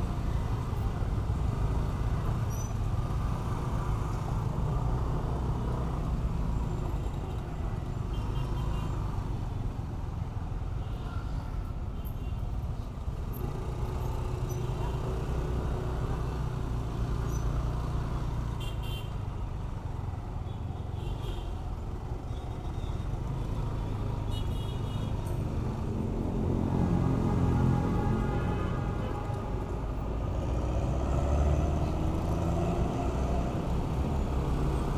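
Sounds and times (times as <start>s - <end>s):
rumble of traffic engines: 0.0s - 34.9s
engine revving and pulling away: 30.2s - 34.9s.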